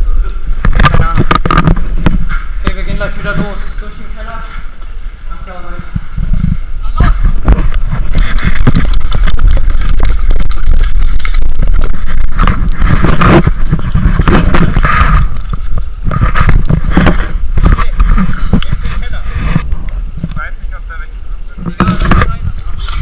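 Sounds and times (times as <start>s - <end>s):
branches scraping and rustling: 0.0s - 20.6s
wind buffeting microphone: 0.0s - 23.0s
camera handling rumble: 0.2s - 3.6s, 5.9s - 20.4s, 21.6s - 23.0s
knocks and clatter of gear: 6.0s - 20.4s.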